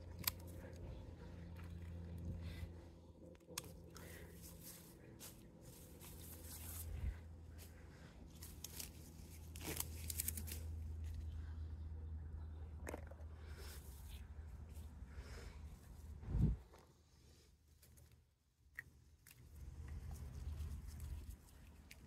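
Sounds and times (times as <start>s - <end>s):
pruners snapping stems: 0.0s - 0.9s, 8.3s - 11.2s
steady low hum: 0.0s - 22.0s
leaf rustling: 4.0s - 11.2s.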